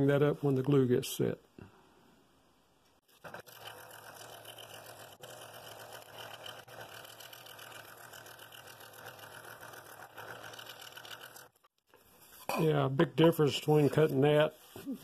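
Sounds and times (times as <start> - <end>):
scroll saw blade buzzing in wood: 3.1 - 11.7.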